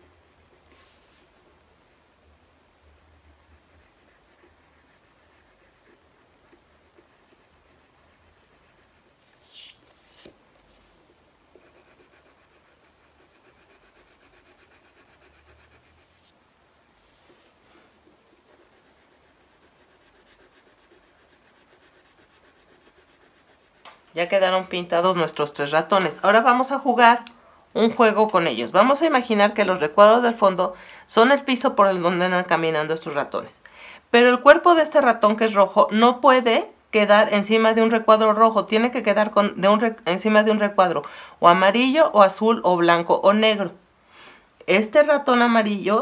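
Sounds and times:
pencils rubbing on paper: 0.0s - 1.5s, 2.8s - 11.0s, 11.6s - 17.6s, 18.2s - 25.2s.

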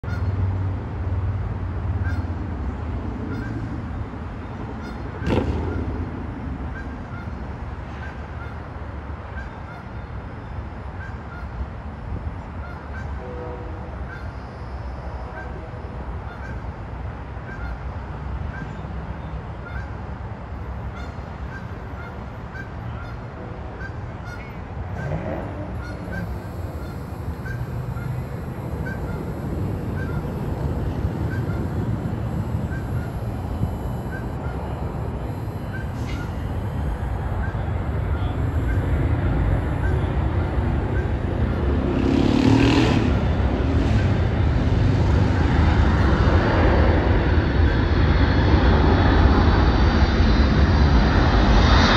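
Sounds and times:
nasal honk-like call: 0.0s - 0.3s, 3.3s - 3.6s, 12.6s - 16.6s, 23.8s - 43.3s
vehicle passing: 24.4s - 47.6s.

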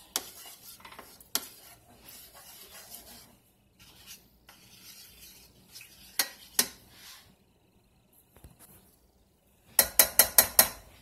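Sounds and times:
plastic spoon scraping pan: 0.0s - 7.3s
spoon knocking against pan: 9.8s - 10.9s.

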